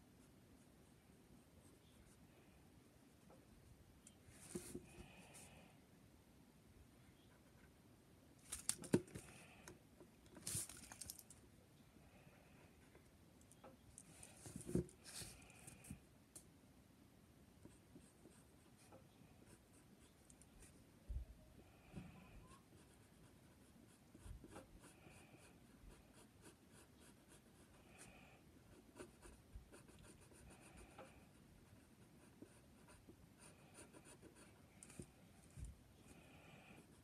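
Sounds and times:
pencil scratching on paper: 22.5s - 27.8s, 28.7s - 34.6s.

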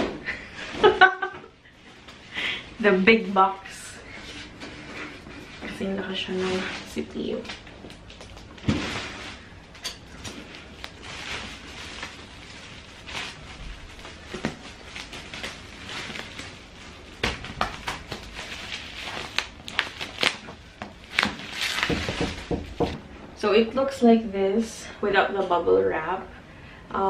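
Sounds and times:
bubble wrap rustling and crackling: 1.9s - 23.0s.

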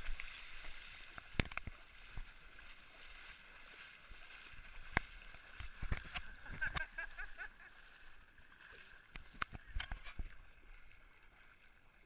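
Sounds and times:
sea water splashing: 0.0s - 12.0s.

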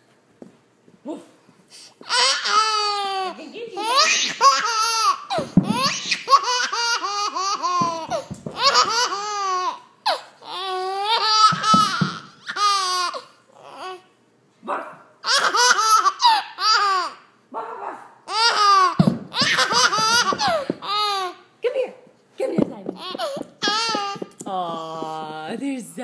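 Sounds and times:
baby giggling: 2.1s - 13.9s, 15.2s - 17.2s, 18.3s - 21.4s, 22.9s - 25.2s.

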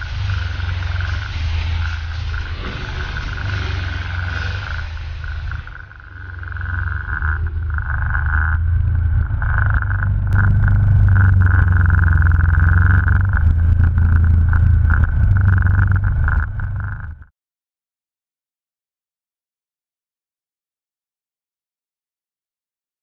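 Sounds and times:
off-road vehicle engine: 0.0s - 17.3s.

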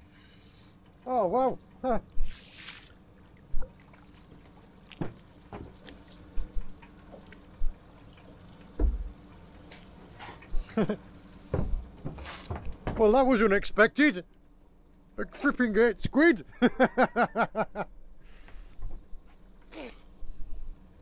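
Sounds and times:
water splashing and dripping: 2.1s - 13.2s.

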